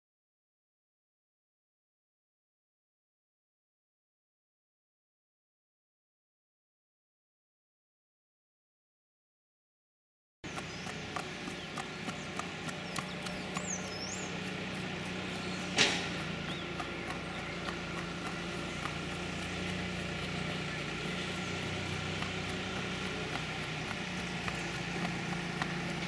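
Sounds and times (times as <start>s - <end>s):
hoofbeats on concrete: 10.5s - 26.0s
steady low hum: 10.5s - 26.0s
loud thump: 15.7s - 16.2s.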